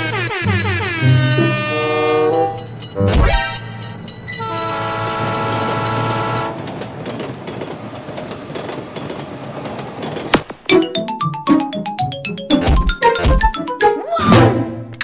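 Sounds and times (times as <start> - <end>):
cartoon train horn: 0.0 - 3.7, 4.4 - 6.6
train rushing on rails: 0.0 - 10.5.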